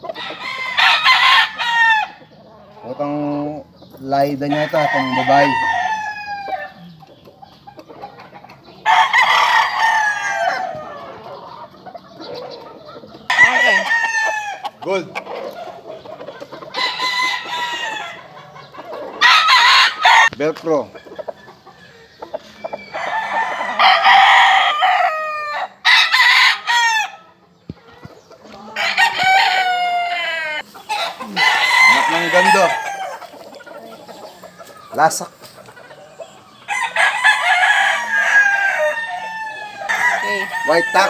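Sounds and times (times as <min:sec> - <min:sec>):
rooster crowing: 0:00.1 - 0:02.2, 0:04.5 - 0:06.8, 0:08.8 - 0:11.2, 0:13.3 - 0:14.7, 0:16.7 - 0:18.2, 0:19.2 - 0:20.3, 0:22.7 - 0:27.3, 0:28.7 - 0:33.6, 0:36.7 - 0:41.0.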